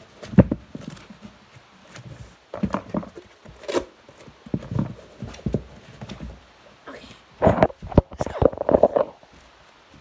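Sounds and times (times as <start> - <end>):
handling noise on microphone: 7.4 - 10.0.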